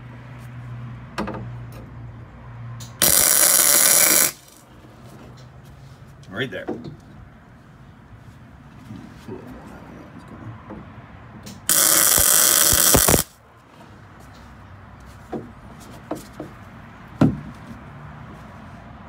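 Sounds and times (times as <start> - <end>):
arc welder hissing: 3.0 - 4.6, 11.7 - 13.3.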